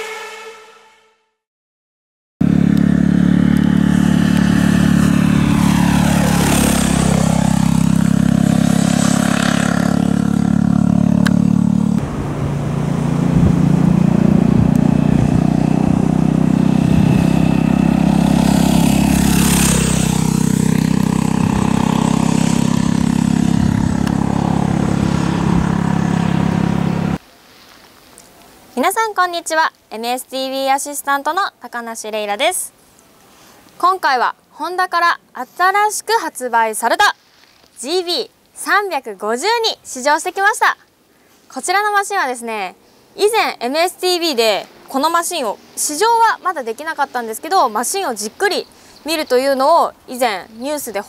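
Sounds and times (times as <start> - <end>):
motorcycle passing by: 2.4 - 27.2.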